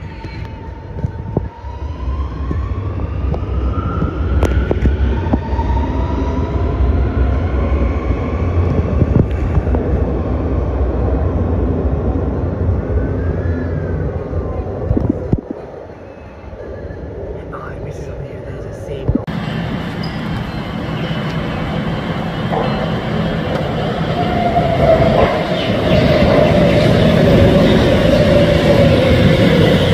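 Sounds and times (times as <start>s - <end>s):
train rumbling past: 0.0s - 29.9s
sharp clicks of train: 19.0s - 24.1s.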